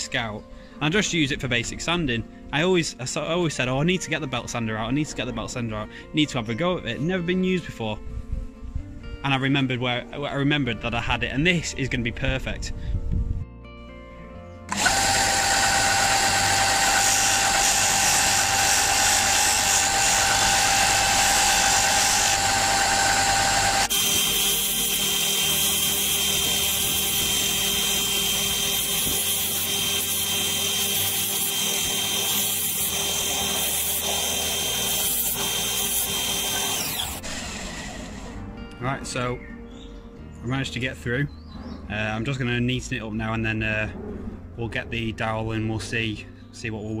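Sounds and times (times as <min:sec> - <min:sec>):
antler grinding on sanding disc: 0:14.7 - 0:38.4
sander humming: 0:14.7 - 0:38.5.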